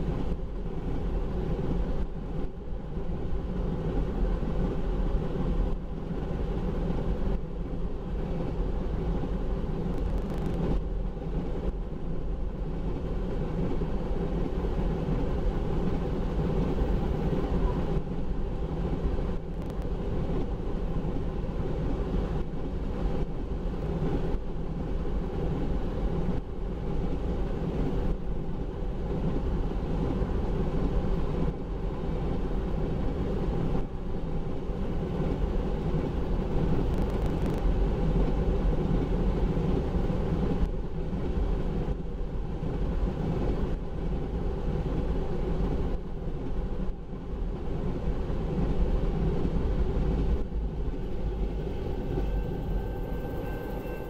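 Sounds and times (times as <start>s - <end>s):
freight train rolling past: 49.3s - 54.0s.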